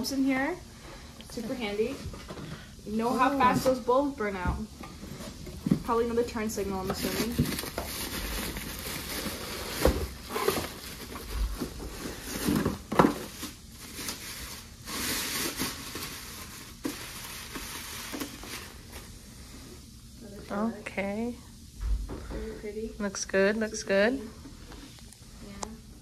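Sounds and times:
bubble wrap crinkling: 5.1 - 19.2.

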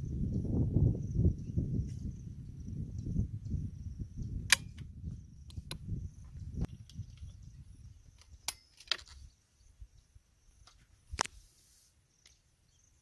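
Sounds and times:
shotgun metallic clicks: 4.5 - 4.8.

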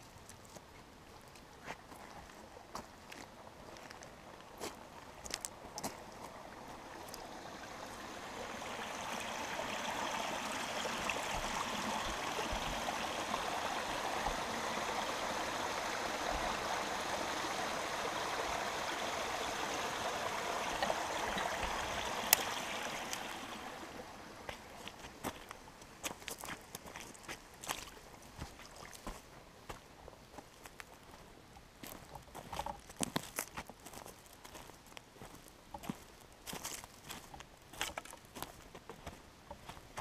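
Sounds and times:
creek babbling: 2.2 - 30.0.

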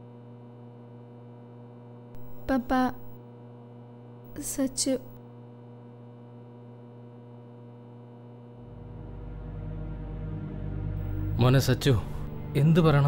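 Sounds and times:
steady electrical hum: 0.0 - 9.2, 11.0 - 13.0
steady tones: 2.2 - 3.2, 11.0 - 13.0
person speaking a name: 2.3 - 3.1, 4.4 - 5.1
background music: 8.7 - 13.0
low sound: 8.7 - 13.0.

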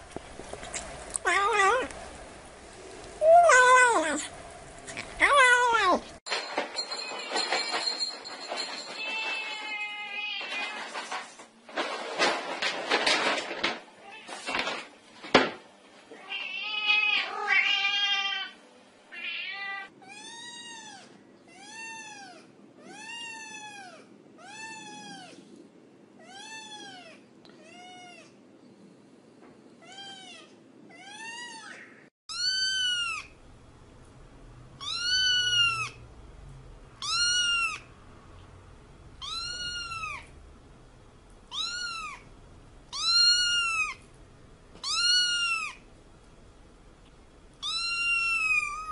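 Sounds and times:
cat meowing: 16.1 - 25.4, 29.8 - 33.3, 34.8 - 36.0, 37.0 - 37.9, 39.2 - 40.3, 41.5 - 42.3, 42.9 - 44.0, 44.8 - 45.8, 47.6 - 48.9.

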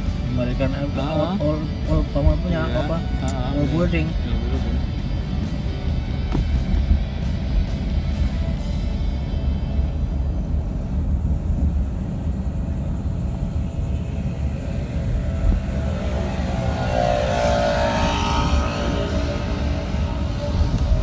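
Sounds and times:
car cabin road and engine rumble: 0.0 - 21.0
higher tones: 13.0 - 21.0.

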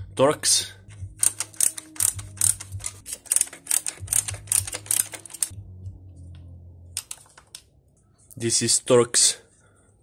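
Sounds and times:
ratcheting screwdriver clicking: 1.2 - 5.5.

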